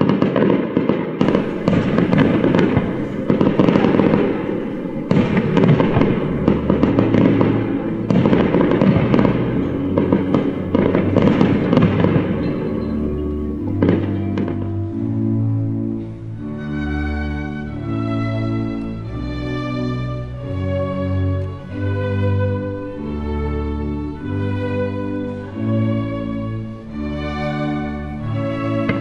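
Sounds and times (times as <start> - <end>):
fireworks crackling and banging: 0.0 - 15.5, 27.8 - 29.0
orchestral string music: 0.0 - 29.0.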